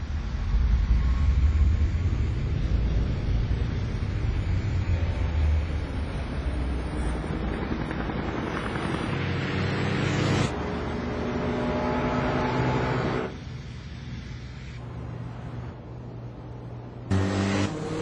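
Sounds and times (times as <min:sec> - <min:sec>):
truck and motorcycle engines: 0:03.4 - 0:14.2, 0:17.0 - 0:18.0.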